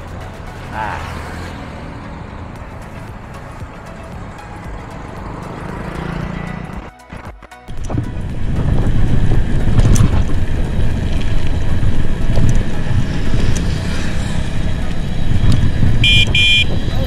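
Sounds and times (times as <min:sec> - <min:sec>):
wind buffeting microphone: 0:07.7 - 0:17.0.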